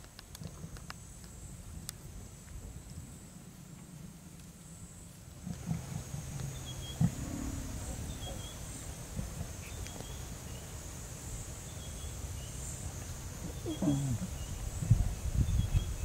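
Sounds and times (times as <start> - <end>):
lioness growling low: 5.5 - 8.6, 13.4 - 14.4.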